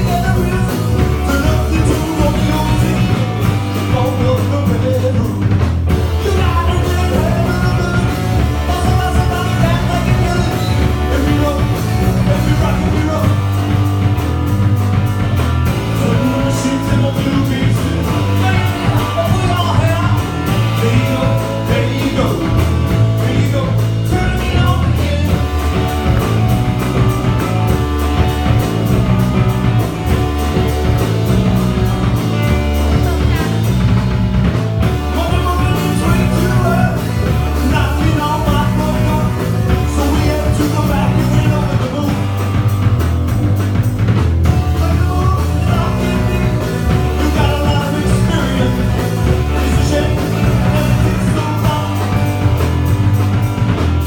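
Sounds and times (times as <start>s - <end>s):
person singing: 0.0s - 13.9s, 15.6s - 27.5s, 34.8s - 42.7s, 44.5s - 52.7s
deep sustained bass notes: 0.0s - 54.0s
guitar: 0.0s - 54.0s
live rock band playing: 0.0s - 54.0s.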